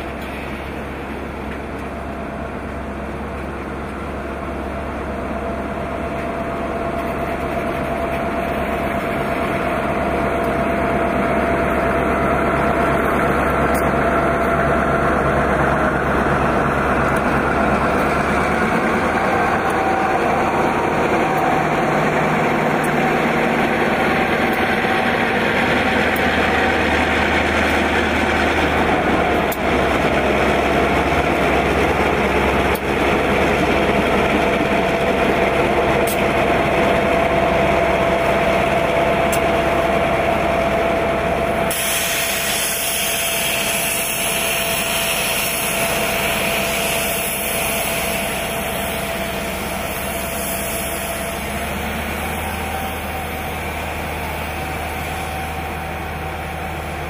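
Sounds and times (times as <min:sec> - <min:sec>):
diesel locomotive engines: 0:00.0 - 0:57.0
train wheels running on rails: 0:00.0 - 0:57.0.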